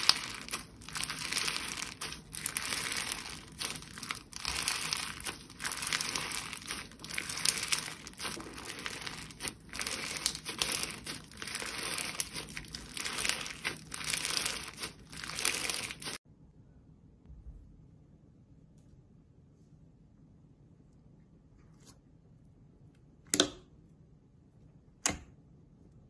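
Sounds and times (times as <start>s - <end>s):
slime crinkling crackle: 0.0s - 16.2s.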